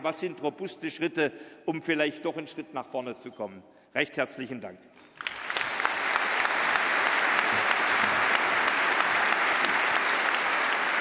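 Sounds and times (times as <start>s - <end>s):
large crowd applauding: 5.2s - 11.0s.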